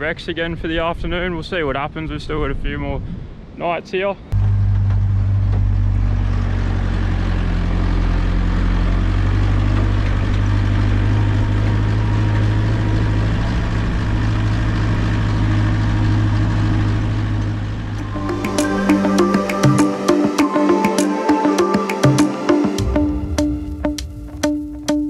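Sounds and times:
car engine droning: 0:04.4 - 0:20.6
rush of driving noise: 0:04.4 - 0:24.8.

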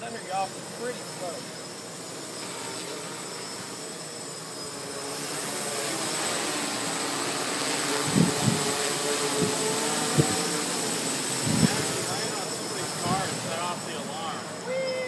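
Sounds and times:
drone propellers whining: 0:00.0 - 0:15.0
wind buffeting microphone: 0:08.0 - 0:10.5, 0:11.4 - 0:12.0.

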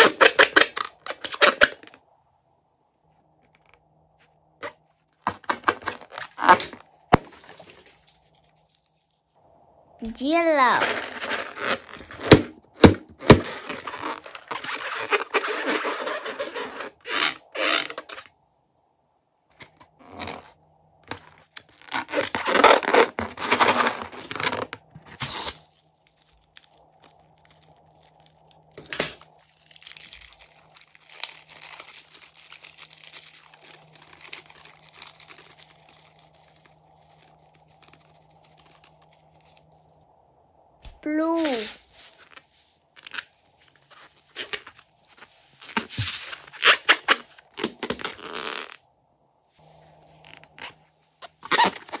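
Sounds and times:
balloon crinkling and rubbing: 0:03.4 - 0:09.3, 0:10.7 - 0:18.3, 0:19.6 - 0:39.7, 0:41.2 - 0:48.8, 0:49.6 - 0:52.0
slime crackling and crunching: 0:25.3 - 0:39.6.

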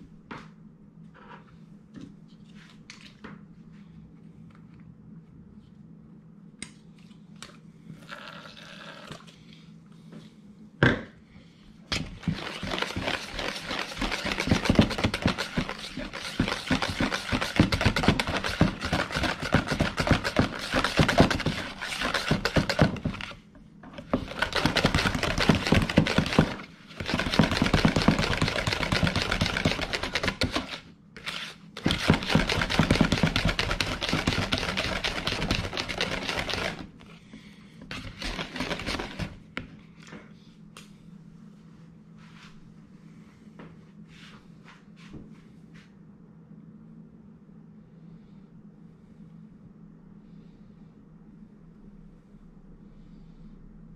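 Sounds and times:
whisk clicking against bowl: 0:12.2 - 0:23.2.

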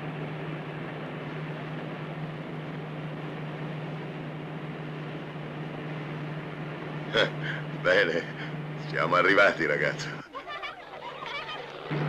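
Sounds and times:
aircraft engine drone: 0:00.0 - 0:12.0.

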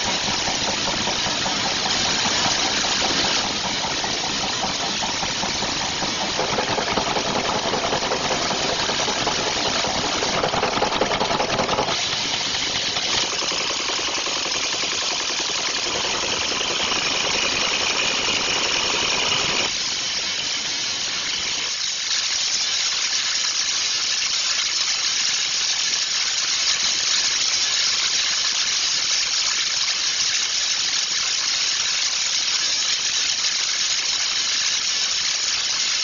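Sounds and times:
machinery running: 0:00.0 - 0:19.8.

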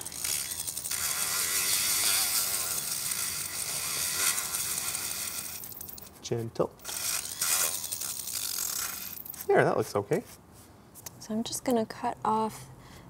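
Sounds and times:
rotary tool grinding plastic: 0:00.0 - 0:06.1, 0:06.8 - 0:09.5.

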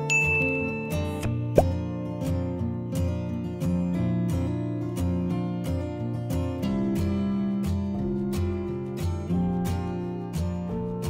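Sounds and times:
bright chime ding: 0:00.0 - 0:01.7
strummed acoustic guitar music: 0:00.0 - 0:11.0.

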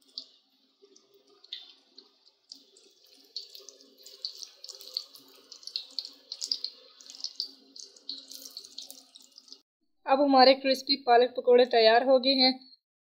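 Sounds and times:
fritters deep-frying in oil: 0:00.0 - 0:09.6.

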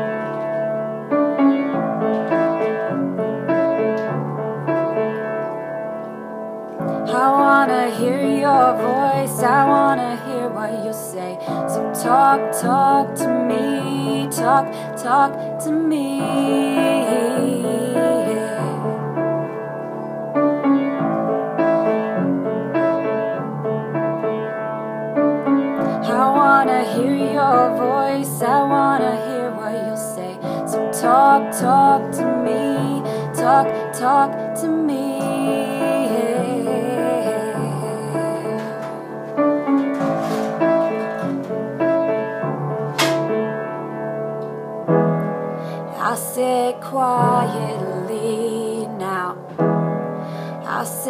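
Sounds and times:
slow piano accompaniment: 0:00.0 - 0:51.0
person singing gentle song: 0:06.8 - 0:20.0, 0:25.8 - 0:41.4, 0:45.7 - 0:49.8, 0:50.5 - 0:51.0.

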